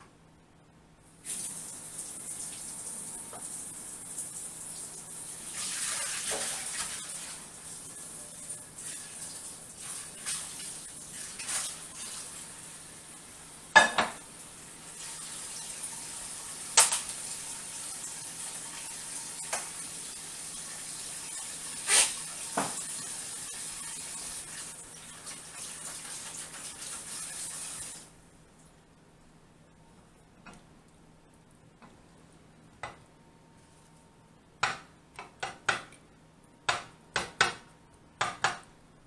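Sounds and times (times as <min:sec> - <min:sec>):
dishes clattering: 0:13.8 - 0:14.2
tap running into sink: 0:22.5 - 0:22.9.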